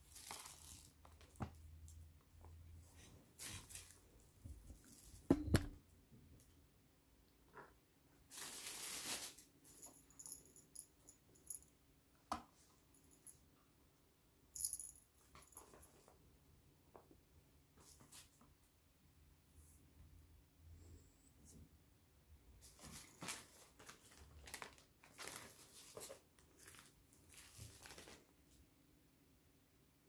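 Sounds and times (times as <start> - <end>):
packet crinkling: 0.0 - 1.3, 23.0 - 28.3.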